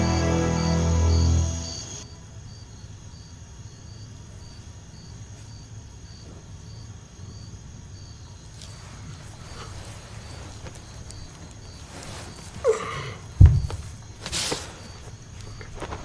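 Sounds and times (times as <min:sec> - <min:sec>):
cricket chirping: 0:00.0 - 0:16.0
faint rustles: 0:08.4 - 0:16.0.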